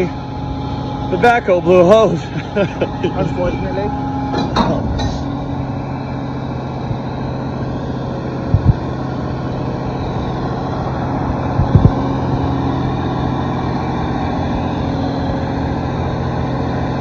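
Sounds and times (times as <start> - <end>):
diesel engine humming: 0.0 - 17.0
low double thumps: 8.5 - 9.0, 11.4 - 12.2.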